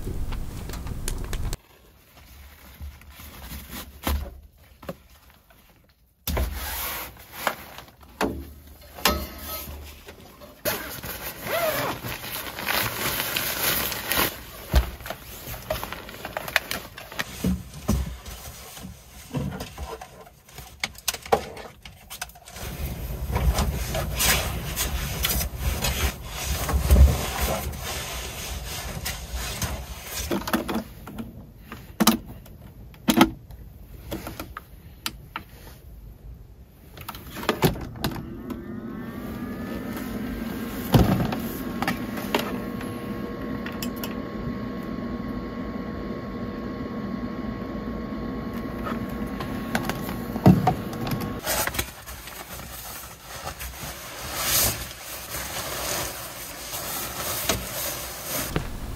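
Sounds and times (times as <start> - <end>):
fabric and bedding rustling: 0.0 - 5.8, 38.9 - 43.6, 51.3 - 58.9.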